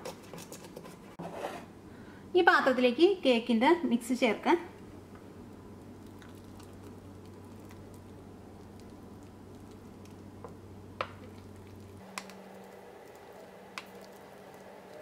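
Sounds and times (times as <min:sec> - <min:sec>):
batter squelching: 0:05.8 - 0:15.0.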